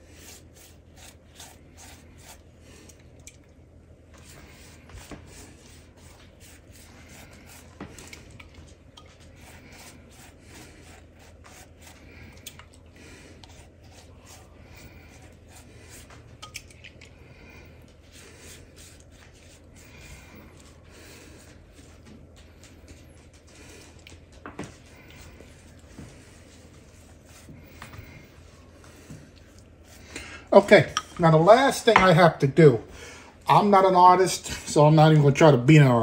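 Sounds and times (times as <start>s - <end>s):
pastry brush rubbing strokes: 0.0s - 3.1s, 4.1s - 16.5s, 17.3s - 22.9s, 24.7s - 31.2s.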